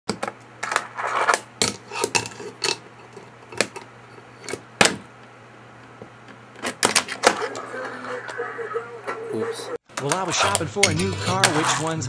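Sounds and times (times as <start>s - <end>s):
fingerboard scraping: 10.2s - 12.0s.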